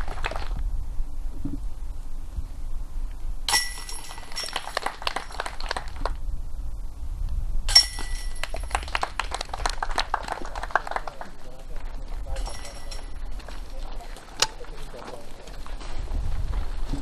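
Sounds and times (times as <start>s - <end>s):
disc golf putts clanking chains: 3.5s - 5.7s, 7.7s - 8.9s, 12.2s - 14.7s.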